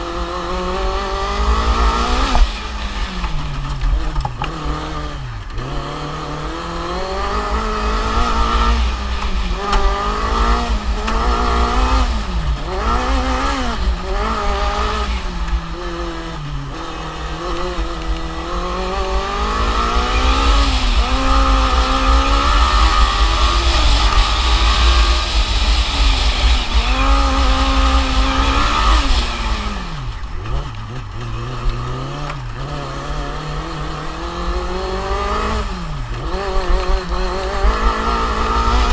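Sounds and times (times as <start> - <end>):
race car engine revving: 0.0 - 38.9.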